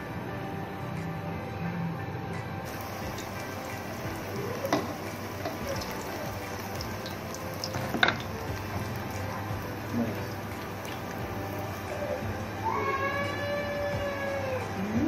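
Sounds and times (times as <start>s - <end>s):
food deep-frying in oil: 2.7s - 13.0s.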